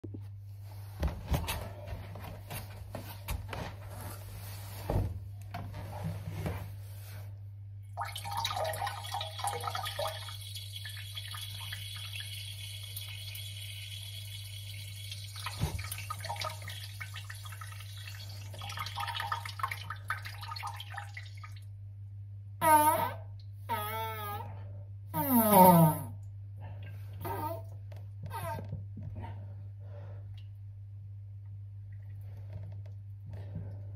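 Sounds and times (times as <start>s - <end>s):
water dripping into toilet bowl: 7.9s - 21.8s
water trickling: 8.0s - 21.8s.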